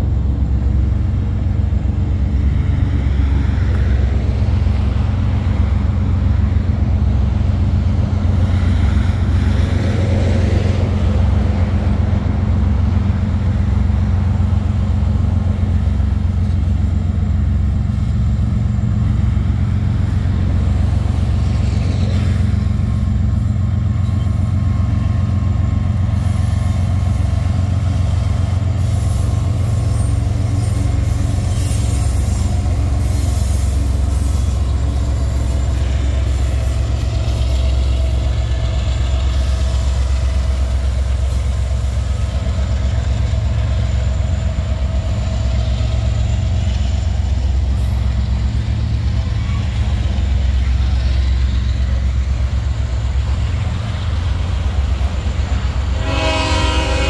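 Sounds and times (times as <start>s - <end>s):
freight train rumbling: 0.0s - 57.0s
wheel squeal: 29.8s - 34.7s.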